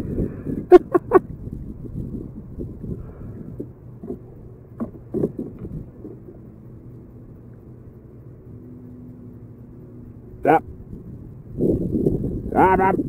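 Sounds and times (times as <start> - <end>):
faint low hum: 0.0 - 13.0.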